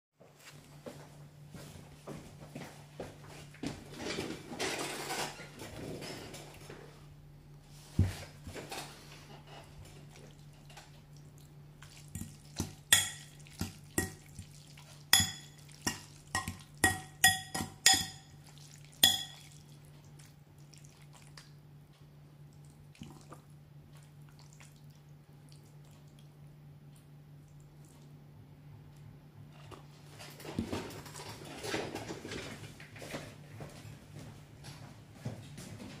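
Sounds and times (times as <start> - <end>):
stirring and twirling pasta: 7.7 - 21.6, 22.4 - 26.4
fork clinking against ceramic bowl: 12.9 - 13.4, 14.0 - 14.3, 15.1 - 18.4, 19.0 - 19.6.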